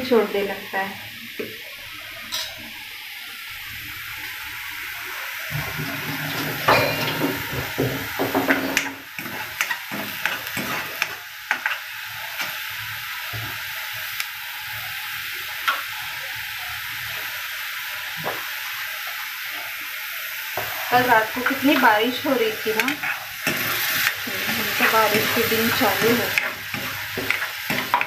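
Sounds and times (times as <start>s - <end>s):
paste sizzling in hot oil: 0.4s - 28.0s
metal ladle scraping pan: 22.7s - 28.0s.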